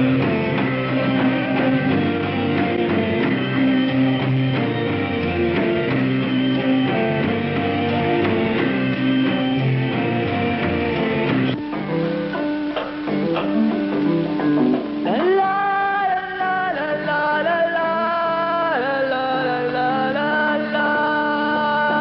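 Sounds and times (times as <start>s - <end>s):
rock music with strummed guitars: 0.0s - 17.4s.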